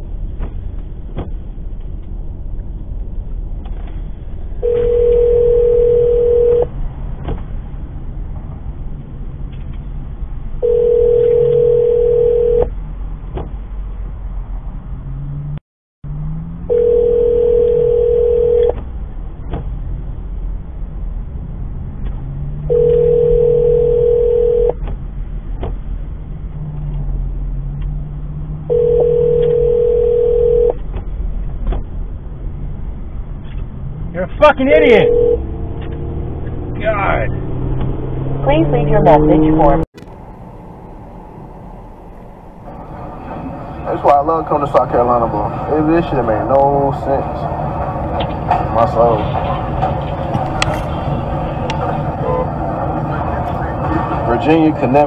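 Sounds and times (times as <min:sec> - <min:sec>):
car road and engine noise: 0:00.0 - 0:55.0
telephone ringback tone: 0:04.6 - 0:06.7, 0:10.6 - 0:12.7, 0:16.7 - 0:18.8, 0:22.7 - 0:24.8, 0:28.7 - 0:30.8, 0:35.0 - 0:35.5.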